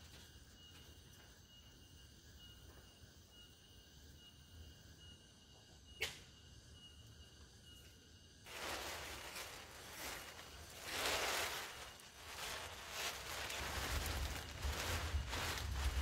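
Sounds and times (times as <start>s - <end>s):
plastic sheet rustling and crinkling: 8.5s - 16.0s
plastic sheet swishing: 8.5s - 16.0s
low rumble: 10.3s - 16.0s.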